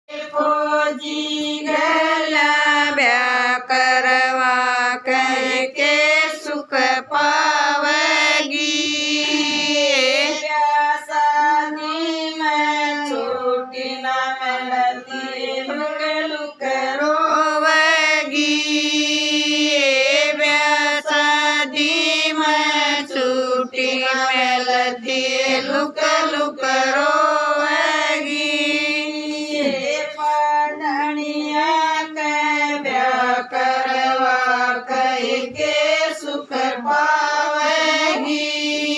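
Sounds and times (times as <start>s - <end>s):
women singing folk song: 0.1s - 38.9s.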